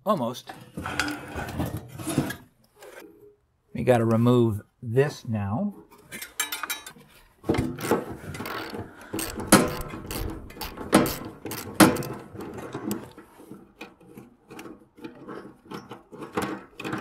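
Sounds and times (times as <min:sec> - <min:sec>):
ratchet wrench clicking: 0:08.4 - 0:12.2
loud metal knocks: 0:09.2 - 0:12.1.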